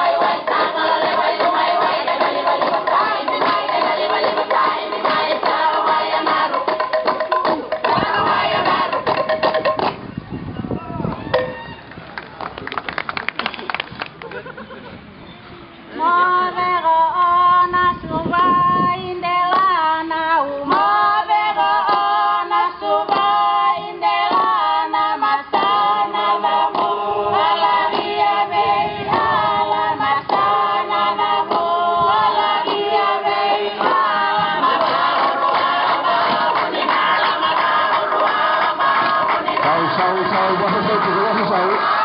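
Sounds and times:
group of voices singing: 0.0s - 9.5s, 19.3s - 42.0s.

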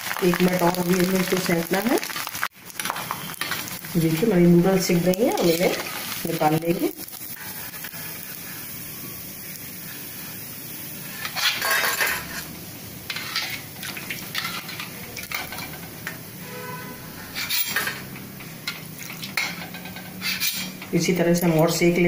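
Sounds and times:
oil sizzling: 0.0s - 22.0s
metal spoon scraping a pan: 4.9s - 8.7s, 11.0s - 12.5s, 13.1s - 21.6s.

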